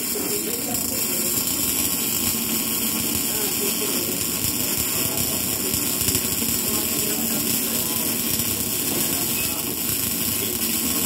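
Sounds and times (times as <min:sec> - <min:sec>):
welding arc crackling hiss: 0:00.0 - 0:11.0.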